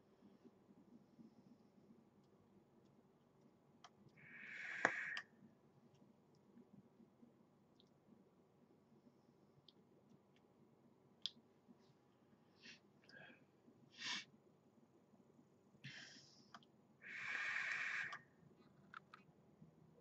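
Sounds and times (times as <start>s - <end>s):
air rushing through e-cigarette: 4.2s - 5.2s, 17.0s - 18.2s
soft breaths: 4.2s - 5.5s, 11.7s - 14.3s, 15.8s - 19.1s.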